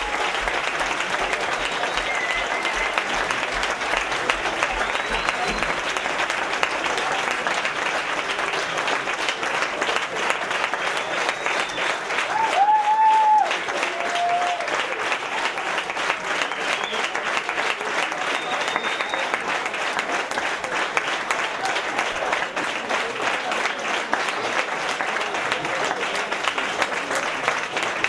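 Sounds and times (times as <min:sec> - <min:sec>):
audience applauding: 0:00.0 - 0:28.0
person cheering: 0:12.3 - 0:14.8.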